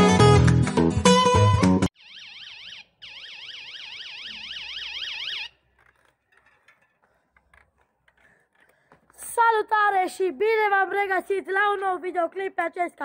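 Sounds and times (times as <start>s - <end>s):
electronic siren yelping: 2.0s - 5.6s.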